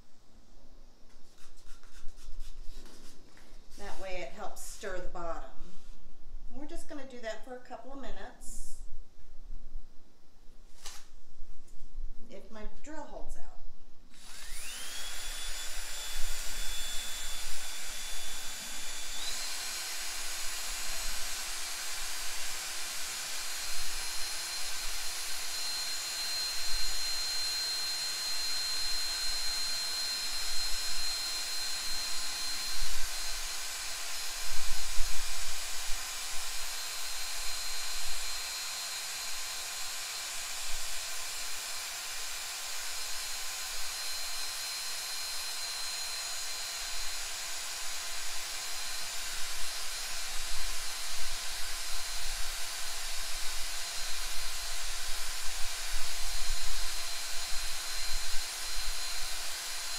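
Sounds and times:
power drill whining: 14.1s - 59.9s.

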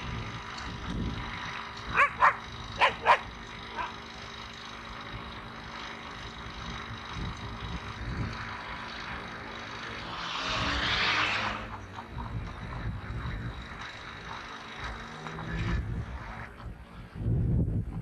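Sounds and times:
dog barking: 1.9s - 4.0s.

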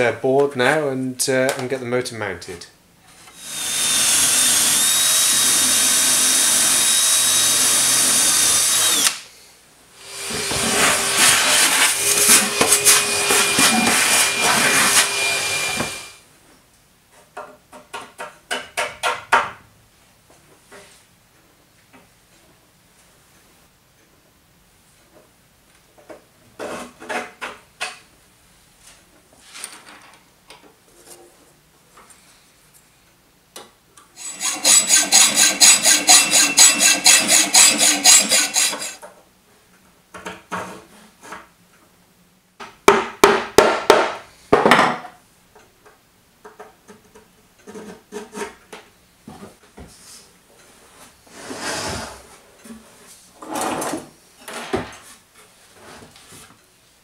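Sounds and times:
fast rasping hand tool strokes: 10.1s - 16.0s, 34.2s - 39.0s
short scrapes: 51.3s - 52.4s.

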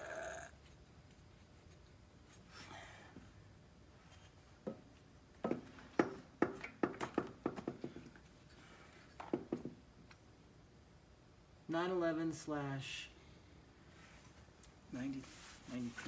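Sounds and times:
sharp taps and knocks on metal: 5.4s - 8.0s.

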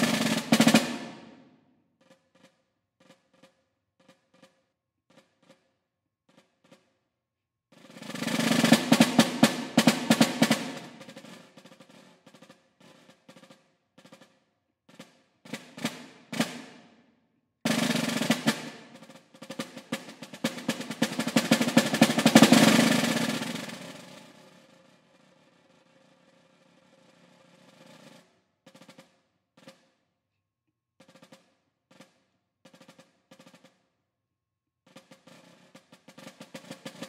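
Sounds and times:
snare drum roll: 0.0s - 5.7s, 6.3s - 6.9s, 7.7s - 17.0s, 17.7s - 29.9s, 31.0s - 33.9s, 34.9s - 37.0s
soft snare drum strokes: 0.0s - 5.7s, 7.8s - 16.9s, 17.7s - 29.9s, 34.9s - 37.0s.

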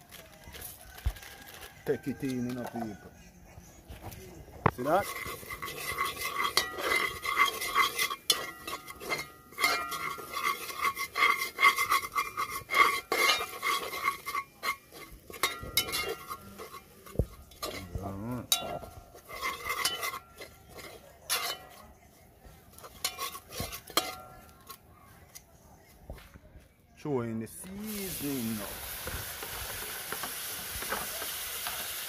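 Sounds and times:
metal spoon scraping a pot: 4.6s - 25.9s, 27.6s - 32.0s
pot ringing: 4.8s - 21.8s.

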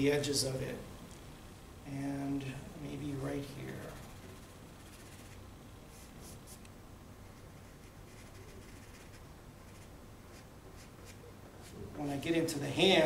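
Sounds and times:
crayon scratching on paper: 3.8s - 6.6s, 7.3s - 11.8s.

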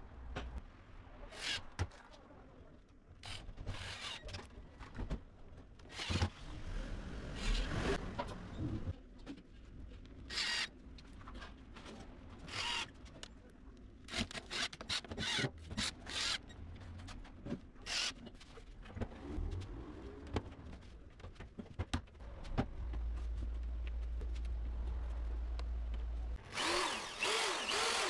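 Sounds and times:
cordless drill driving screws: 12.5s - 12.8s, 26.5s - 28.0s.

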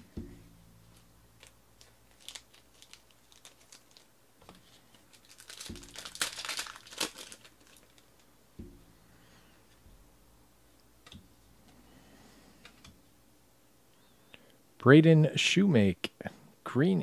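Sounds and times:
foil wrapper crinkling and tearing: 1.4s - 8.3s.

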